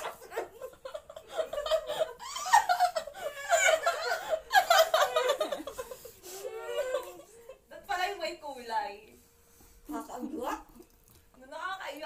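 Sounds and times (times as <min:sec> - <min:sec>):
people laughing and giggling: 0:00.0 - 0:07.7.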